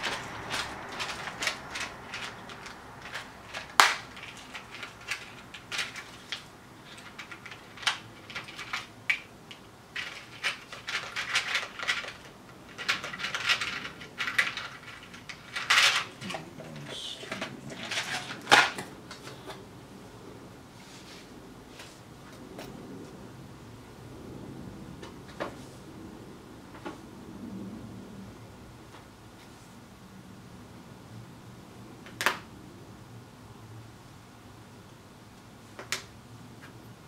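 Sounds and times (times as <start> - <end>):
small parts clicking and rattling: 0.0 - 19.6.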